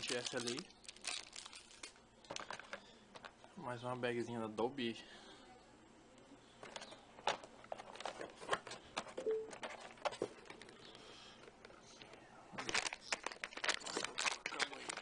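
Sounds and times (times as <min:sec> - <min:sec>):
plastic bag crackling: 0:00.0 - 0:02.8, 0:12.6 - 0:15.0.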